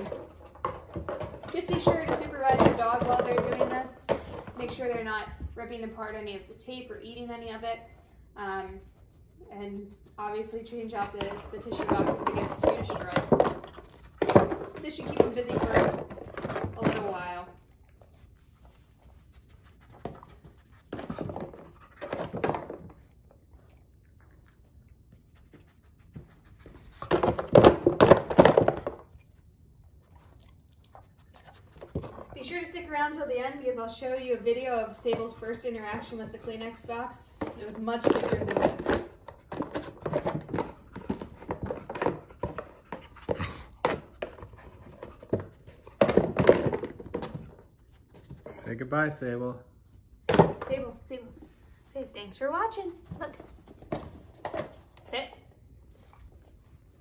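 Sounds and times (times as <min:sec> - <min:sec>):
dog panting and sniffing: 0:07.9 - 0:27.9, 0:29.2 - 0:48.6.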